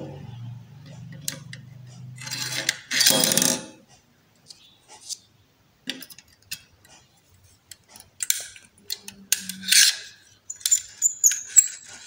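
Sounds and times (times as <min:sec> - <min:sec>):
staple gun metal clicks and scraping: 0:07.7 - 0:12.0.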